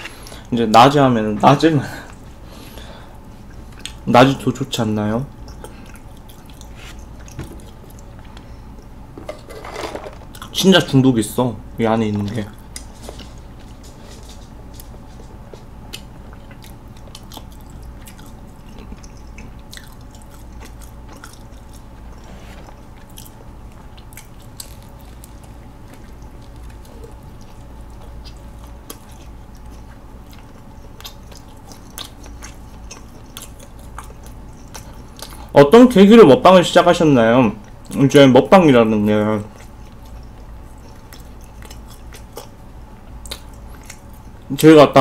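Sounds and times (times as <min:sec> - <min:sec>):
steady low hum: 0:00.0 - 0:45.0
person chewing: 0:02.0 - 0:04.1, 0:05.3 - 0:09.6, 0:10.2 - 0:10.6, 0:12.2 - 0:35.6, 0:39.4 - 0:44.6.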